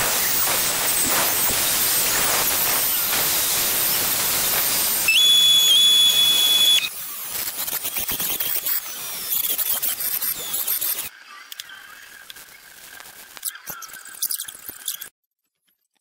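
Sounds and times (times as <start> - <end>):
steady high whine: 0.0 - 7.3.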